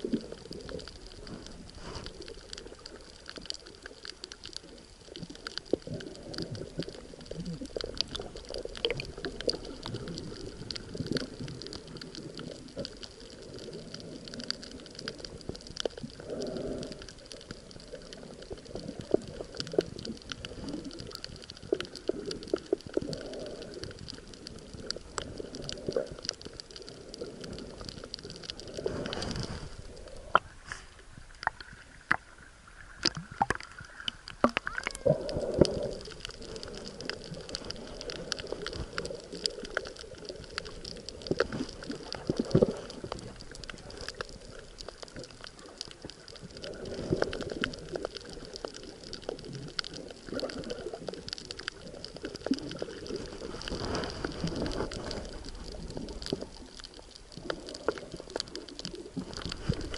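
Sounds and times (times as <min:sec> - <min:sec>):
rushes of water: 0:00.0 - 0:59.9
underwater water gurgling: 0:00.0 - 0:59.9.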